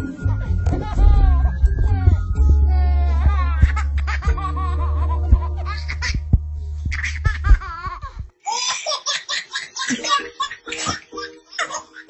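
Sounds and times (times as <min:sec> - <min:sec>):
steady low hum: 0:00.0 - 0:08.4
babies laughing: 0:00.0 - 0:12.0.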